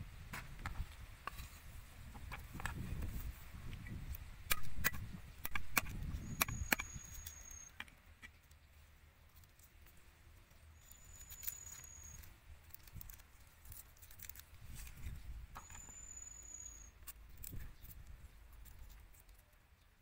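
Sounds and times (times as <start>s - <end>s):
thin high whistle: 6.2s - 7.7s, 10.8s - 12.2s, 15.6s - 17.0s
garlic skins crackling: 10.8s - 15.9s.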